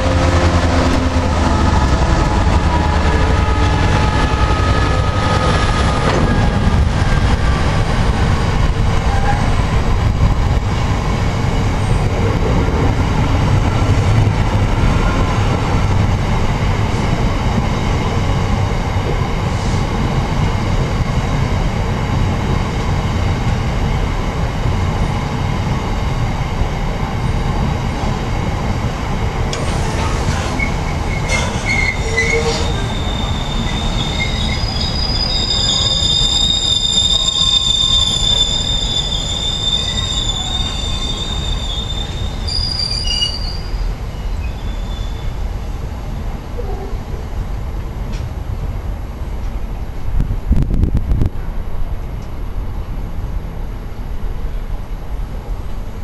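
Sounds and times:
train wheels rumbling on rail: 0:00.0 - 0:56.0
high-pitched wheel squeal: 0:29.5 - 0:45.4.

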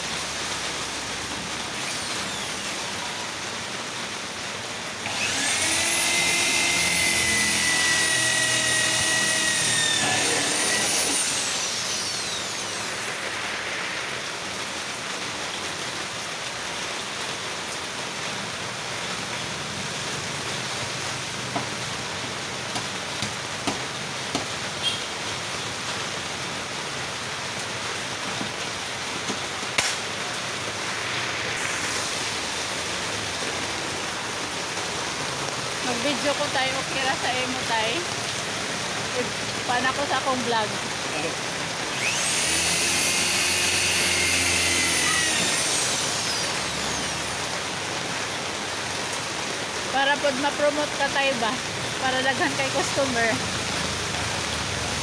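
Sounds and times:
electric drill running: 0:01.5 - 0:03.4, 0:05.0 - 0:14.2, 0:29.2 - 0:34.0, 0:41.1 - 0:48.0
background hiss: 0:24.0 - 0:35.8.

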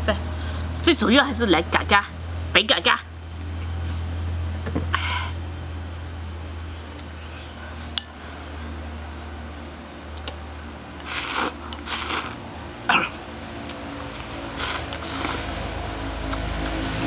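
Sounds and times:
person slurping: 0:11.0 - 0:13.2, 0:14.1 - 0:16.5
chewing: 0:13.0 - 0:15.7.

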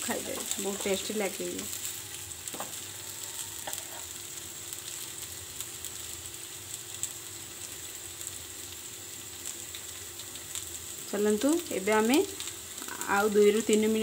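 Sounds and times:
potatoes sizzling in oil: 0:00.0 - 0:14.0
steel spatula scraping: 0:03.6 - 0:04.1.

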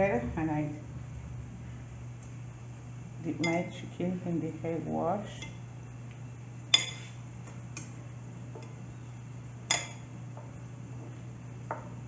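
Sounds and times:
fork clinking on ceramic bowl: 0:06.7 - 0:07.2, 0:09.7 - 0:10.1.

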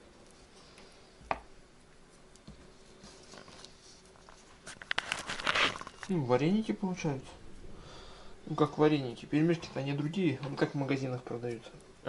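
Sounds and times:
rapid clicks and rustling: 0:02.1 - 0:06.2.

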